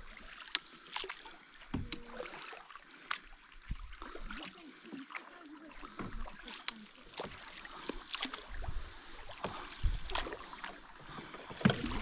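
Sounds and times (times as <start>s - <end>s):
paddles swishing through water: 0.0s - 12.0s.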